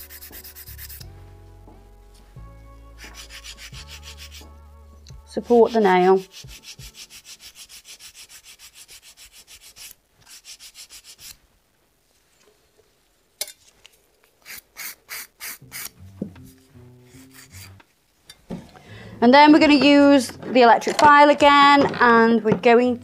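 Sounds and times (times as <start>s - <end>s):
nail file rasping on nail: 0.0s - 1.1s, 3.0s - 4.5s, 5.4s - 11.4s, 14.4s - 15.9s, 17.2s - 17.8s.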